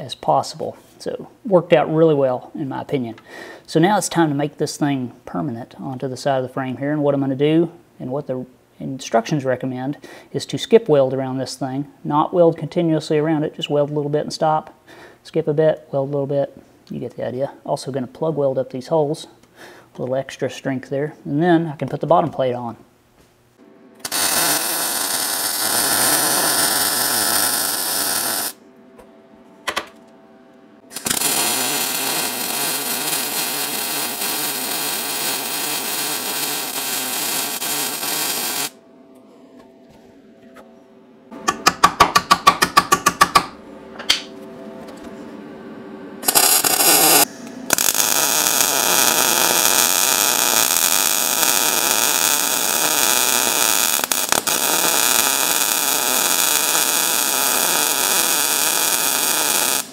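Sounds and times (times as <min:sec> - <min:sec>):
welder arc crackling: 0:24.0 - 0:28.6, 0:30.9 - 0:38.8, 0:46.2 - 0:59.9.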